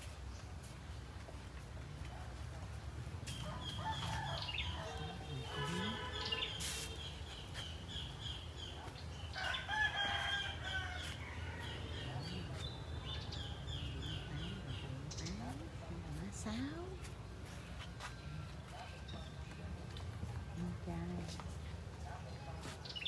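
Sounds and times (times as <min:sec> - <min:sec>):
small birds chirping: 0:00.0 - 0:21.4
rooster crowing: 0:03.6 - 0:05.9, 0:09.4 - 0:12.1.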